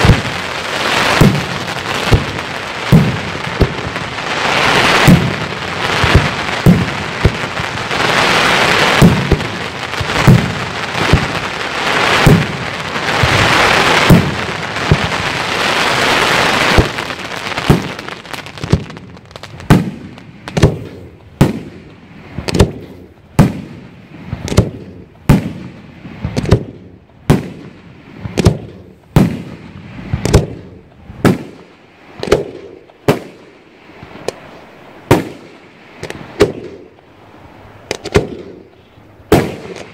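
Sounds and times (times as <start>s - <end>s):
sharp firework bangs with echo: 0.0s - 34.4s, 35.1s - 37.0s, 37.9s - 38.7s, 39.3s - 39.9s
firework booms: 0.0s - 37.0s, 37.6s - 39.9s
firework crackle: 0.0s - 39.9s.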